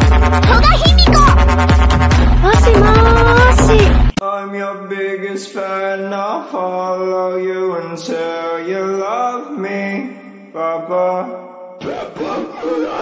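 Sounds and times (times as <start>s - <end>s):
sung chant-like vocal: 2.8s - 13.0s.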